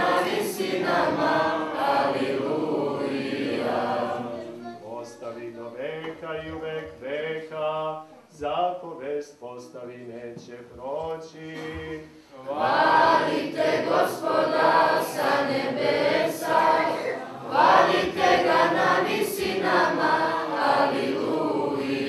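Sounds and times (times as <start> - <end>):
choir singing unaccompanied: 0.0 - 7.8, 12.4 - 22.0.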